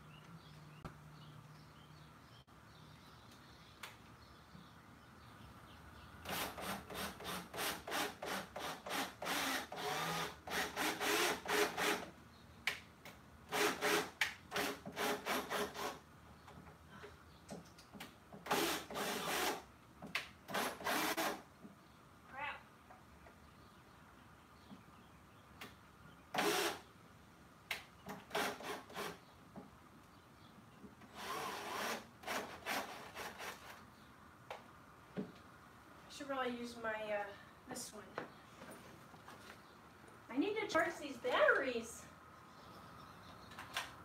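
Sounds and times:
hand saw cutting wood: 6.3s - 12.1s, 13.5s - 16.0s, 31.1s - 33.8s.

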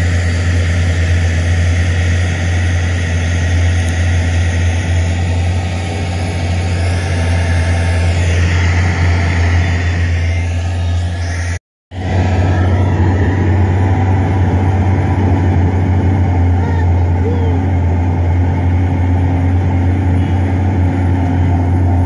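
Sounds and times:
bulldozer diesel engine droning: 0.0s - 22.0s.

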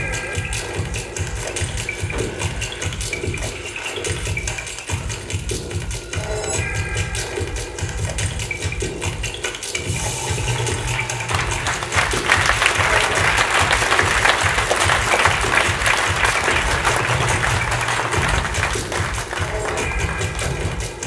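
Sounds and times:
background music: 0.0s - 21.0s
audience applauding: 10.5s - 21.0s.

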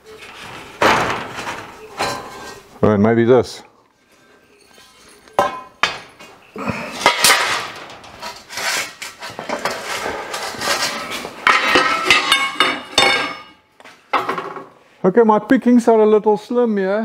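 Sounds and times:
steel pipes clanking: 7.0s - 14.4s.

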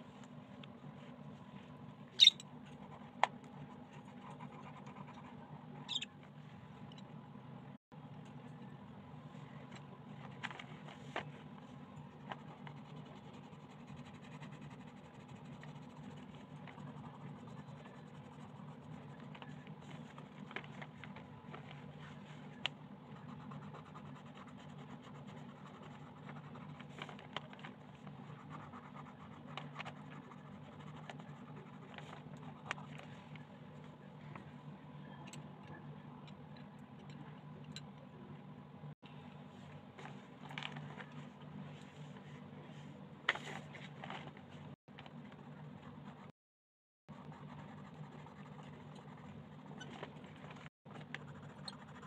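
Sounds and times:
pencil scratching on paper: 12.4s - 20.3s, 23.1s - 27.2s, 47.1s - 52.0s.

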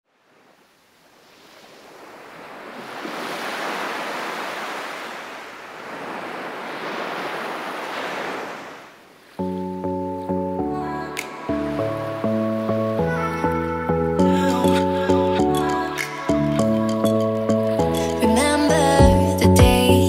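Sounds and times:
ocean waves breaking on beach: 0.1s - 19.0s.

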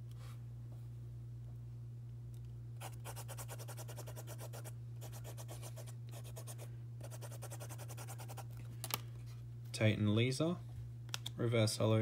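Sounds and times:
steady low hum: 0.0s - 12.0s
pen scribbling on paper: 2.8s - 8.4s.

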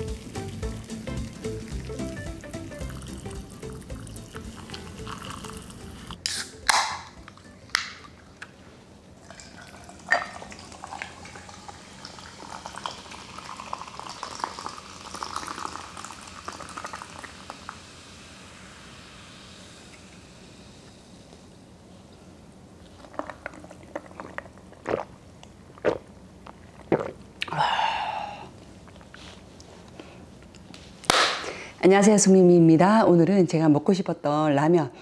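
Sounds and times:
fizzy drink fizzing over ice: 0.0s - 6.2s, 9.2s - 20.9s
hot water pouring from kettle: 0.0s - 6.2s, 9.2s - 21.3s.

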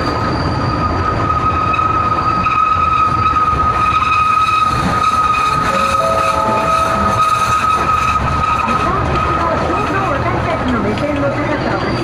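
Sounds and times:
wheels rumbling on rail: 0.0s - 12.0s
high-pitched wheel squeal: 0.2s - 9.8s.

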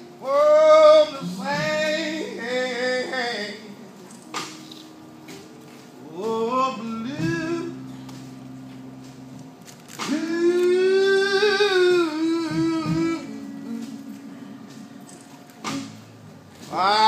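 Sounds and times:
low held chord: 0.0s - 17.0s
man singing blues: 0.1s - 4.0s, 6.0s - 8.3s, 10.0s - 14.4s, 16.6s - 17.0s.

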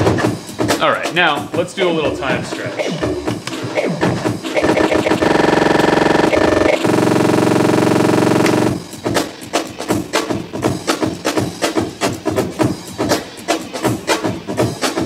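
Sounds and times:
sustained pitched granular buzz: 4.6s - 8.8s.

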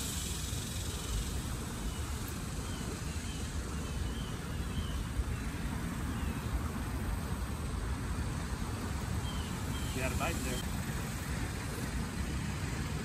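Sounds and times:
bird chirping: 0.0s - 7.0s, 8.8s - 10.8s.

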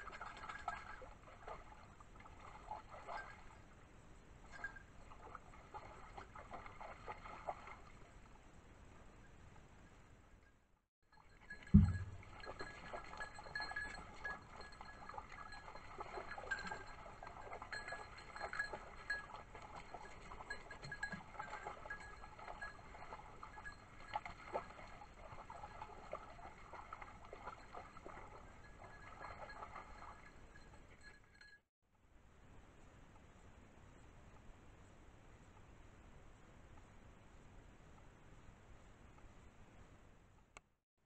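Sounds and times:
dog paws on rock and water: 0.0s - 8.4s, 11.3s - 31.6s
heavy thump: 11.8s - 12.2s.

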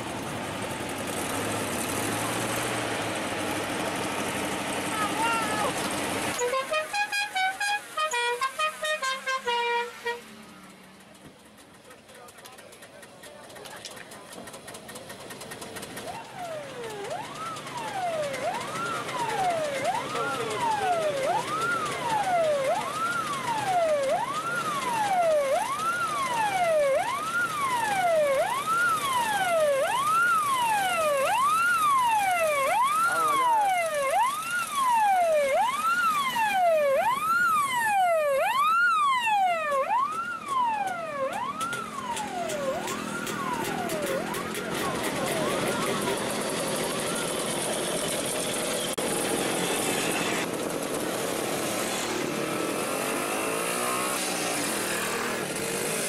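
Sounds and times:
police siren wailing: 4.9s - 5.8s, 6.4s - 10.2s, 15.8s - 50.6s.

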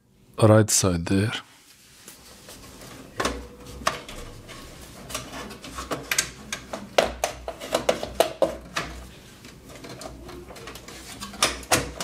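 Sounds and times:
plastic and metal parts clattering: 2.8s - 12.0s.

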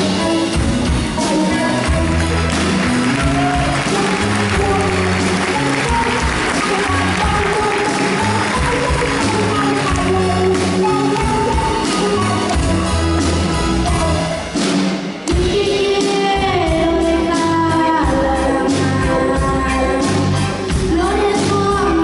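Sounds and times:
electric bass: 0.0s - 14.4s
woman singing: 0.0s - 14.5s, 15.3s - 22.0s
drum kit: 0.0s - 22.0s
keyboard: 0.0s - 22.0s.

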